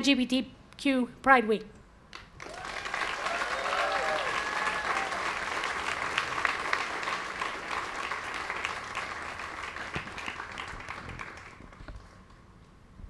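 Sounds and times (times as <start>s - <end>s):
crowd applauding: 2.4s - 12.4s.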